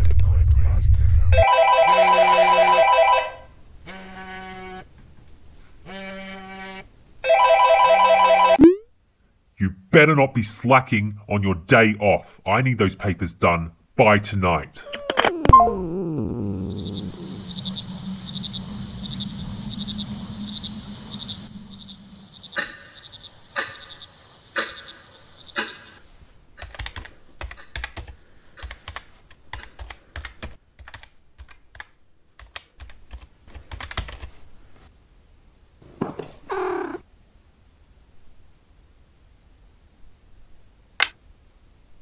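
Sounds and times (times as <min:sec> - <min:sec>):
brief pitched tone: 0:08.6 - 0:08.9, 0:15.3 - 0:16.6
laptop keyboard typing: 0:26.6 - 0:34.3.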